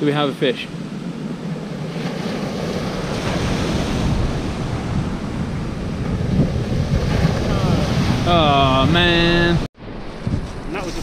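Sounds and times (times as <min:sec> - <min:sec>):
wind rumbling on microphone: 0:00.0 - 0:11.0
sea surf on beach: 0:00.1 - 0:11.0.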